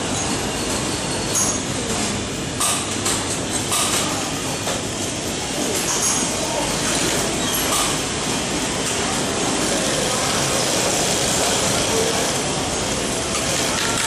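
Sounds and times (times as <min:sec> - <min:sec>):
sewing machine running: 0:09.4 - 0:14.0.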